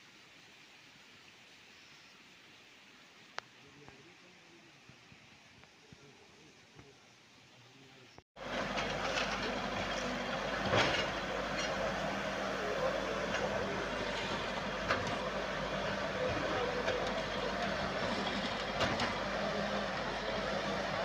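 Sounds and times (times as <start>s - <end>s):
diesel engine running: 8.4s - 21.0s.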